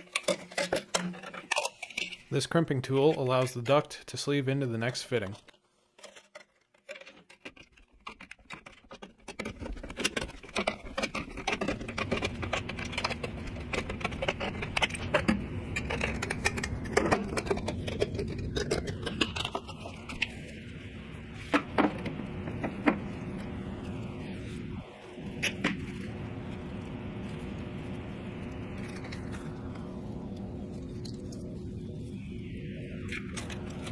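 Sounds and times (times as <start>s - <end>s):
steady background hiss: 0.0s - 5.9s, 9.9s - 33.9s.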